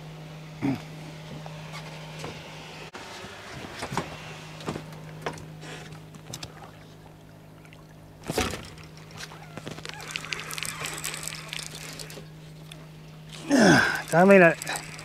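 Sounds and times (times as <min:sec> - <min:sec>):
steady low hum: 0:00.0 - 0:15.0
water sloshing around boat: 0:03.6 - 0:15.0.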